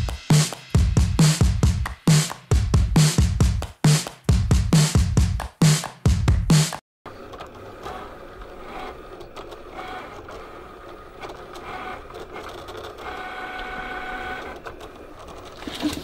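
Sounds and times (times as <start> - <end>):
vinyl cutter motors whirring: 7.1 - 16.0.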